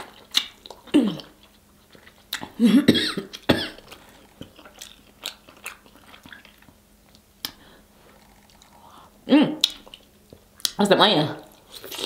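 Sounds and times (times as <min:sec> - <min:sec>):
lip smacks: 0:00.0 - 0:02.6, 0:03.3 - 0:08.8, 0:09.6 - 0:10.8
biting and chewing: 0:03.3 - 0:08.8.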